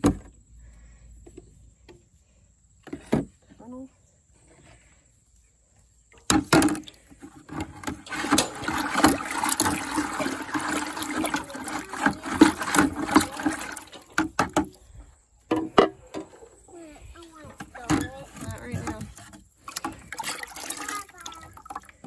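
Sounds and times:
liquid sloshing in plastic bucket: 6.1 - 15.0, 17.3 - 22.0
pole knocking bucket: 6.2 - 14.8, 17.4 - 22.0.

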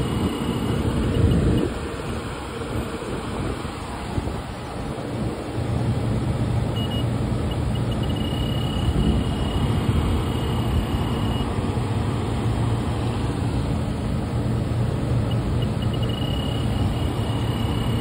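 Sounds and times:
high electronic beeps: 0.0 - 1.8, 6.8 - 11.6, 15.3 - 18.0
low mechanical hum and rushing: 0.0 - 18.0.

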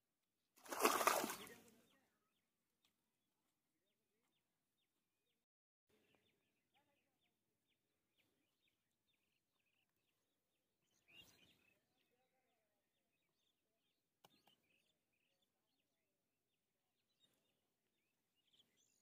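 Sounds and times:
faint bird chirps: 5.9 - 16.0.

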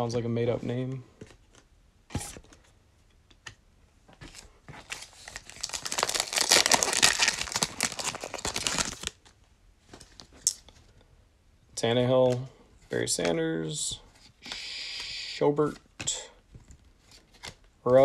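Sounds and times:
foil wrapper tearing and crinkling: 5.0 - 9.2.

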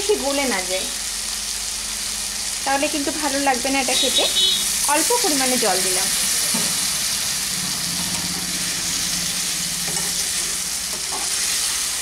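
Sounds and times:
curry sizzling in a pan: 0.0 - 12.0
spatula stirring: 9.7 - 12.0.

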